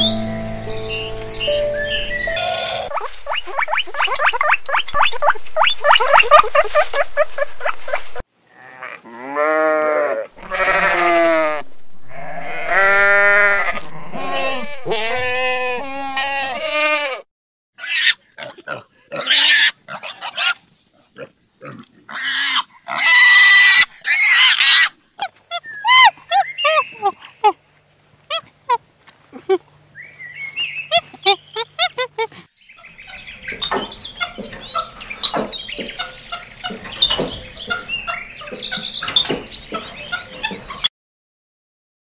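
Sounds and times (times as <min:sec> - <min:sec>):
high repeated chirps: 0:00.0 - 0:06.6
sheep bleating: 0:02.2 - 0:02.9, 0:08.5 - 0:17.2
piglets squealing: 0:02.2 - 0:07.0, 0:09.3 - 0:17.2, 0:17.8 - 0:20.6, 0:21.6 - 0:27.6, 0:30.9 - 0:32.3.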